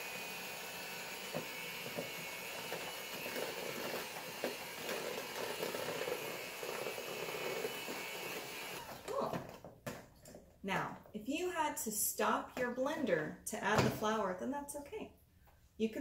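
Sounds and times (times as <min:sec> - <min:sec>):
electric hand mixer running: 0:00.0 - 0:09.1.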